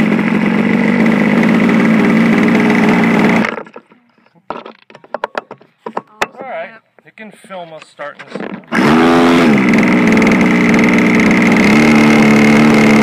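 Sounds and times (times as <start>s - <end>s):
model airplane motor running: 0.0s - 3.8s, 8.7s - 13.0s.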